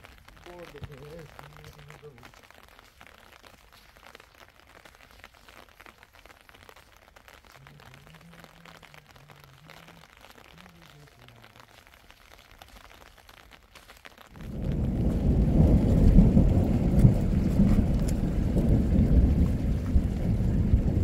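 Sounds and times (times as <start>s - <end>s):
heavy rain: 0.0s - 21.0s
light rain pattering: 0.0s - 21.0s
thunder rumble: 14.3s - 21.0s.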